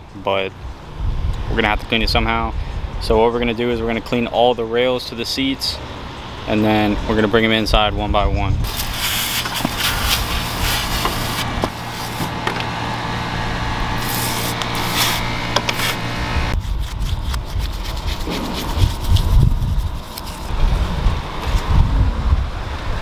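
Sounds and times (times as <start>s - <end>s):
pump sprayer hissing: 8.6s - 16.6s
brush scrubbing metal rails: 8.7s - 12.6s, 13.9s - 20.5s.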